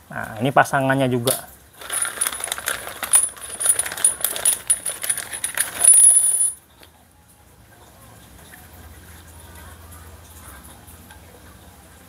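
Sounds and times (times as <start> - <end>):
plastic bag crinkling: 1.8 - 6.1.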